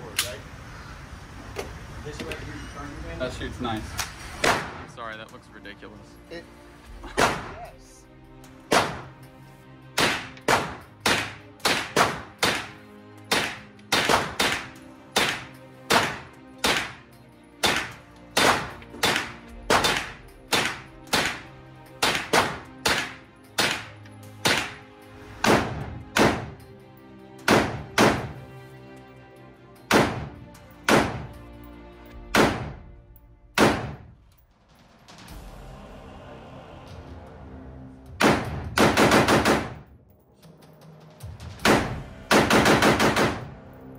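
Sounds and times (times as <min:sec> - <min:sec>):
rifle shots echoing indoors: 0:10.0 - 0:17.0, 0:17.6 - 0:21.4, 0:27.5 - 0:28.3, 0:29.9 - 0:31.2, 0:32.3 - 0:32.8, 0:33.5 - 0:34.1, 0:38.2 - 0:39.9, 0:41.6 - 0:43.6.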